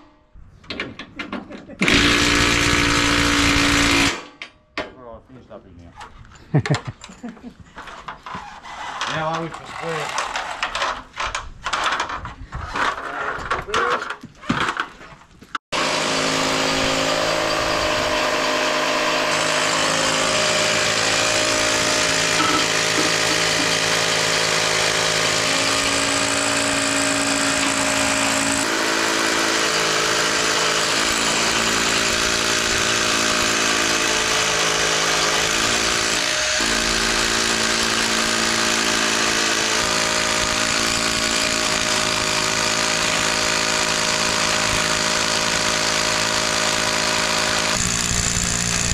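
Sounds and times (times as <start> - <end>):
drill boring into concrete: 1.8 - 4.2, 8.7 - 10.9, 15.8 - 48.9
shop vacuum running: 15.8 - 48.9.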